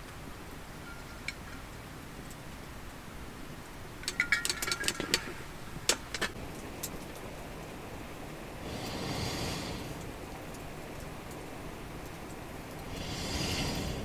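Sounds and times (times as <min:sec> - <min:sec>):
steady low hiss: 0:00.0 - 0:14.0
tableware clinking: 0:04.0 - 0:05.4.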